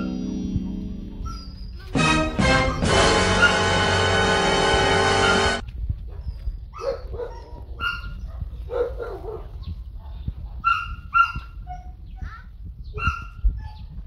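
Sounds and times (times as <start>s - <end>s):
music: 0.0s - 5.6s.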